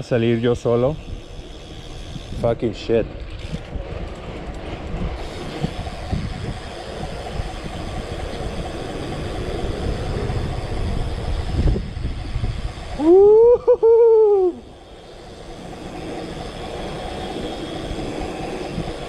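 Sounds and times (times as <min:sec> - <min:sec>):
wind on microphone: 0:00.0 - 0:14.8, 0:15.4 - 0:19.0
bike tyres rumbling on pavement: 0:01.0 - 0:13.4, 0:14.6 - 0:19.0
loud pitched wail: 0:13.0 - 0:14.7.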